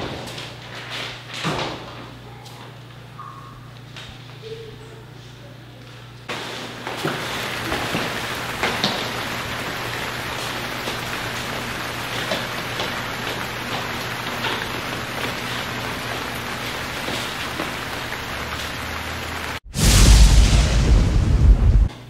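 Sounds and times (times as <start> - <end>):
steady rain: 7.0 - 21.9
raindrops ticking: 7.4 - 19.6.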